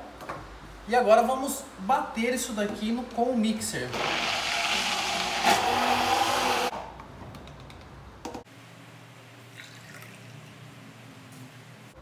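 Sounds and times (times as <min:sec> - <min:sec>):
immersion blender motor whine: 0:04.0 - 0:06.7.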